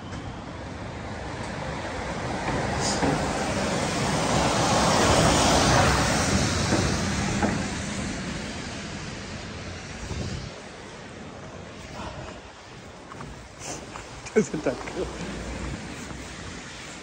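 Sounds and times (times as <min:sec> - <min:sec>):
vehicle passing by: 0:01.6 - 0:10.6.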